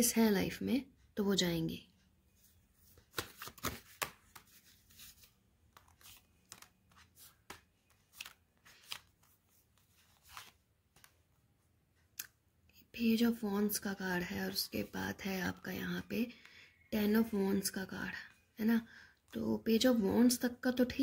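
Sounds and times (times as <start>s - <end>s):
cards being shuffled: 2.9s - 11.2s.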